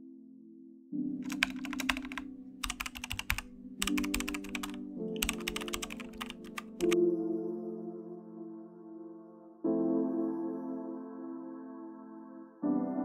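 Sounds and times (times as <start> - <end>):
rapid keyboard typing: 1.2 - 7.0.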